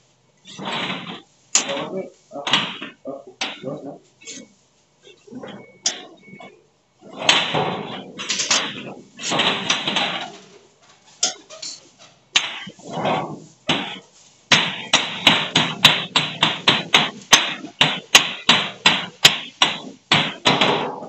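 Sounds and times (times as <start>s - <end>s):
blows on sheet-metal pipe ringing: 0.0s - 21.0s.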